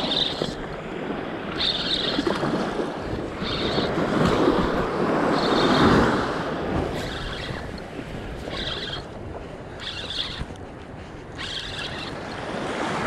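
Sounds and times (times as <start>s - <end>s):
wind on microphone: 0.0s - 13.0s
surf washing onto beach: 3.9s - 7.1s.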